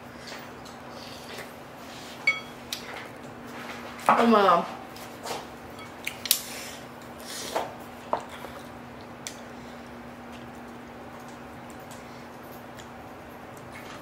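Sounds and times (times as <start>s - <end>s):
faint steady hum: 0.0s - 14.0s
chopsticks clinking on ceramic bowl: 2.2s - 2.6s.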